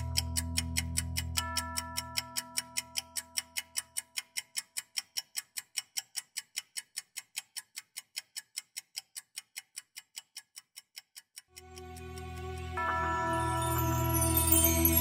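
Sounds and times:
alarm clock ticking: 0.0s - 14.1s
background music: 11.6s - 15.0s.

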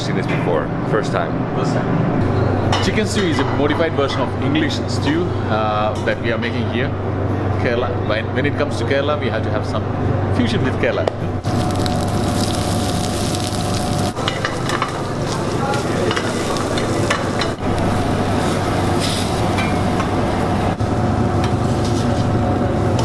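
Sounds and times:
steady low hum: 0.0s - 23.0s
onions sizzling in oil: 11.4s - 19.5s.

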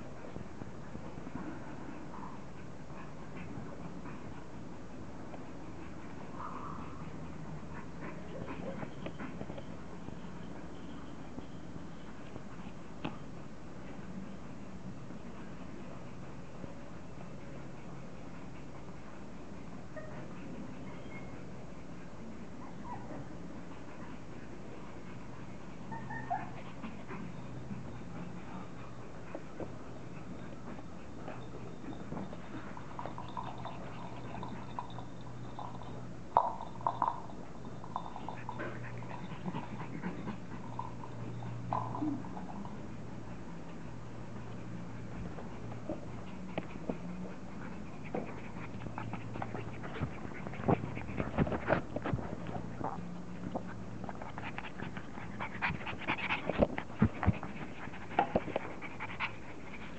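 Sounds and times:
faint steady hum: 0.0s - 59.9s
puppies panting and snuffling: 0.0s - 59.9s
puppy yipping: 25.9s - 26.6s
puppy scuffling with toys: 44.8s - 59.9s.

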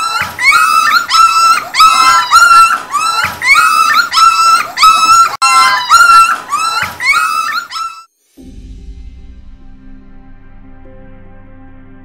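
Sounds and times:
puppies whining: 0.0s - 8.1s.

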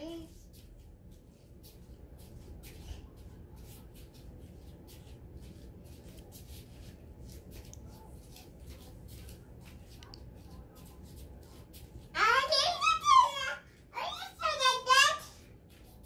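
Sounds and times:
soft rustles and light taps: 0.0s - 12.2s, 15.4s - 16.0s
low steady room noise: 0.0s - 16.0s.

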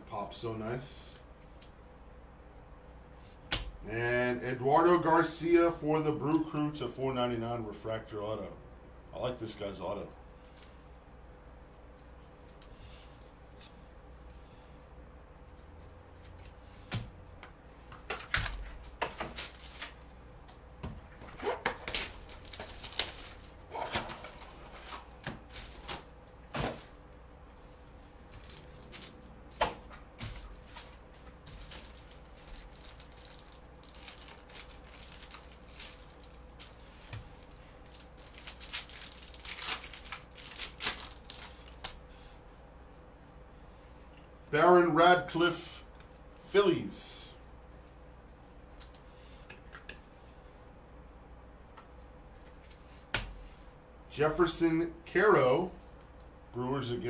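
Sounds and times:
faint steady hum: 0.0s - 57.0s
foil pack crinkling: 18.0s - 20.1s, 21.5s - 42.0s.

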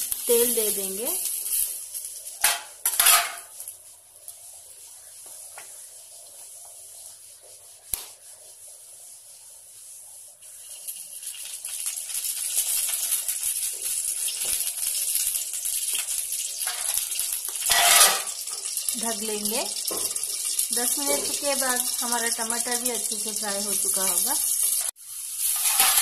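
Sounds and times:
tomatoes sizzling in hot oil: 0.0s - 26.0s.

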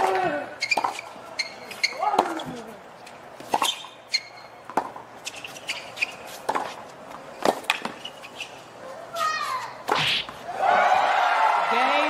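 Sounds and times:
sneakers squeaking on court: 0.6s - 8.8s
tennis ball hit by rackets: 4.7s - 5.6s, 6.2s - 8.0s, 9.5s - 10.4s.

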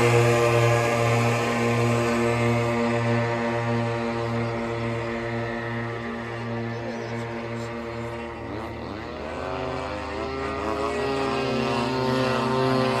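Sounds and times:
model plane propeller drone: 0.0s - 13.0s.

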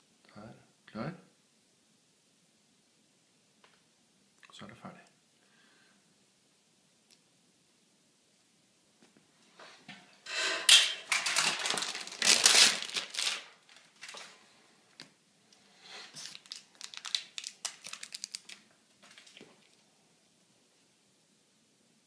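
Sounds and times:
packaging crinkling and tearing: 11.0s - 14.4s, 16.1s - 19.8s
quick crackles: 11.1s - 14.4s, 16.1s - 19.8s.

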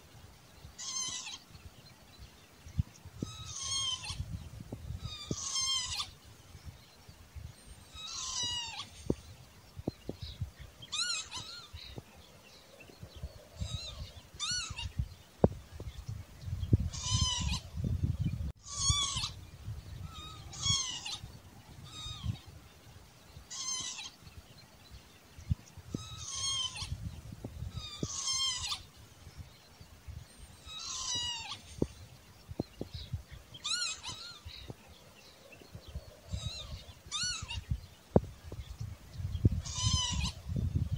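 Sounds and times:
lapwing mewing calls: 0.8s - 1.4s, 3.2s - 4.3s, 5.0s - 6.2s, 7.8s - 9.2s, 10.9s - 11.9s, 13.5s - 15.0s, 16.8s - 17.7s, 18.6s - 19.4s, 20.0s - 22.4s, 23.5s - 24.2s, 25.9s - 27.1s, 27.7s - 28.9s, 30.5s - 32.0s, 33.0s - 34.7s, 36.1s - 37.8s, 39.5s - 40.7s.

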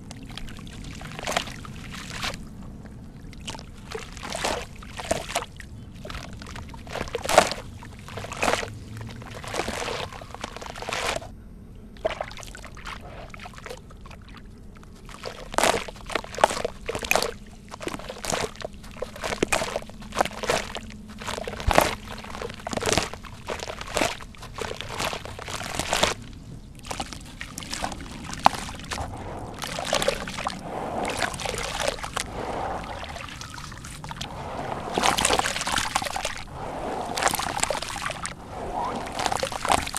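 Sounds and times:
gritty crunches and splashes: 0.0s - 2.5s, 3.2s - 11.3s, 12.0s - 39.9s
hands sloshing in muddy water: 0.0s - 2.5s, 3.3s - 11.3s, 12.0s - 39.9s.

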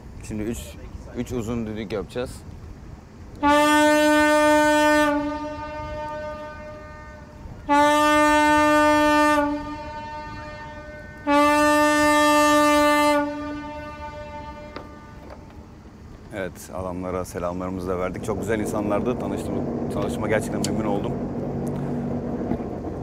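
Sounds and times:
yacht horn blasts: 3.4s - 16.0s.

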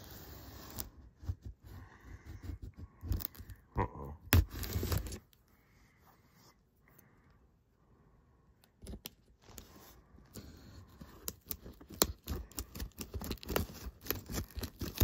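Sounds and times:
scissors snipping packing tape: 11.2s - 15.0s.

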